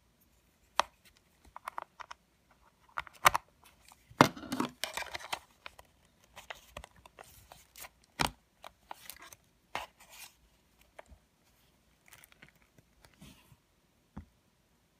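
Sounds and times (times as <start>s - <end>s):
plastic keyboard casing clicks: 0.7s - 2.2s, 2.9s - 3.5s.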